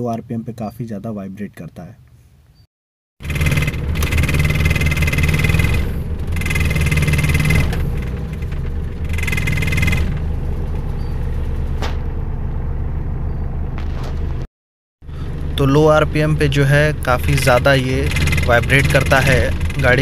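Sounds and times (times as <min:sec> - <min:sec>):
dashboard panels rattling: 0:03.2 - 0:12.2
car engine idling: 0:03.2 - 0:14.4, 0:15.0 - 0:20.0.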